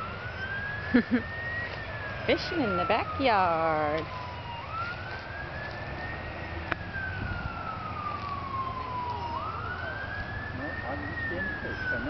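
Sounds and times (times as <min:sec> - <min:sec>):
ambulance siren wailing: 0:00.0 - 0:12.0.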